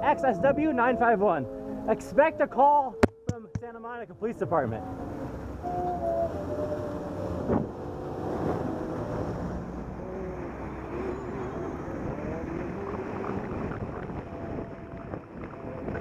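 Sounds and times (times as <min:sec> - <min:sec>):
traffic noise: 0:04.1 - 0:16.0
wind rushing over microphone: 0:04.5 - 0:16.0.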